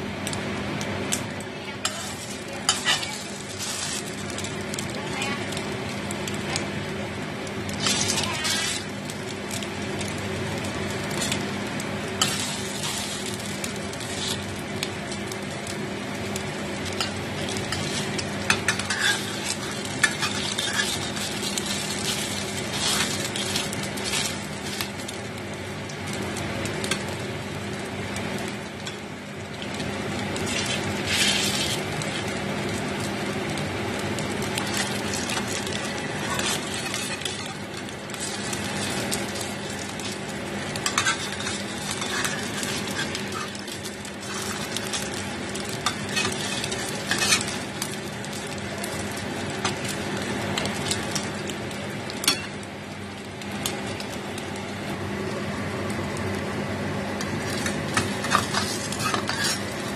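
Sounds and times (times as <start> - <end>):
food sizzling in a pan: 0.0 - 59.9
utensils scraping and clinking on pan: 1.8 - 4.4, 7.8 - 8.9, 12.2 - 14.4, 16.9 - 24.9, 30.4 - 32.3, 34.6 - 48.4, 52.2 - 52.6, 57.2 - 59.9.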